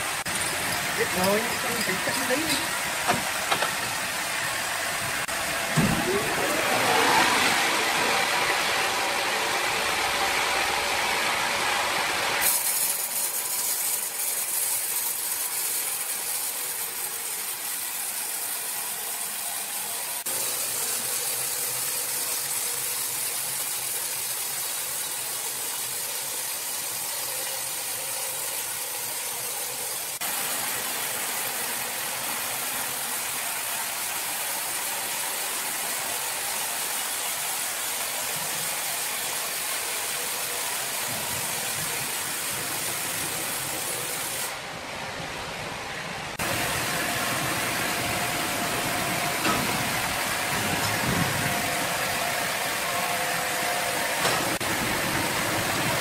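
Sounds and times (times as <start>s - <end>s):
band saw cutting wood: 0.0s - 19.3s.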